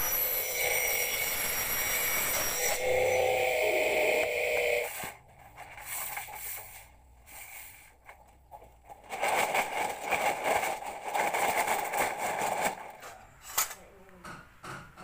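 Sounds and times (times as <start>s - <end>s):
mitre saw motor whining: 0.0s - 5.1s.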